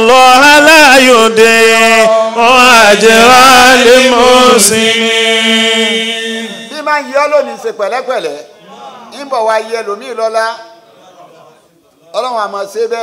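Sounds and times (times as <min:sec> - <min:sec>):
man chanting a recitation: 0:00.0 - 0:10.6.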